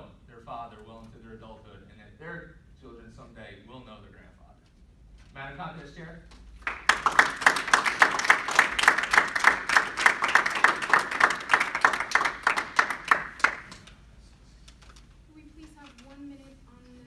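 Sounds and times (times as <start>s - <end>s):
audience applauding: 6.6s - 13.8s.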